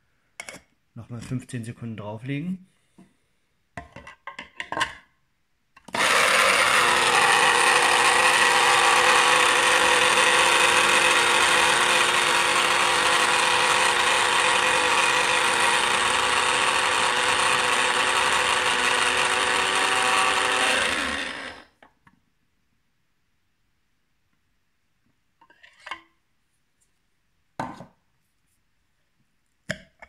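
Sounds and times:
coffee grinder running: 5.9 - 21.7.

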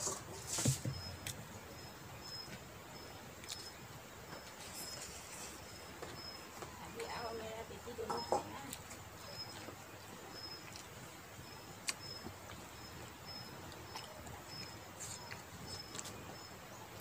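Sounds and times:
mouth clicks from chewing: 11.8 - 12.7.

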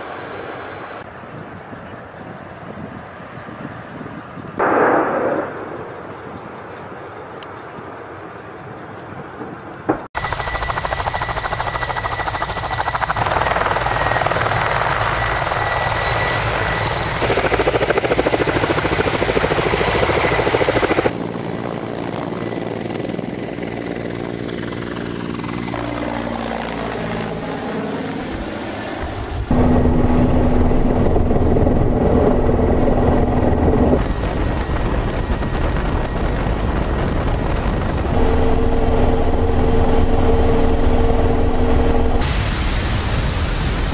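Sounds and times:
helicopter rotor and turbine noise: 0.0 - 43.9
helicopters passing low: 0.0 - 43.9.

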